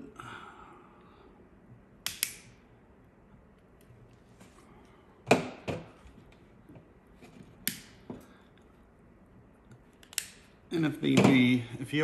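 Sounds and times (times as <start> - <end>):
side cutters snipping metal: 2.0 - 2.5.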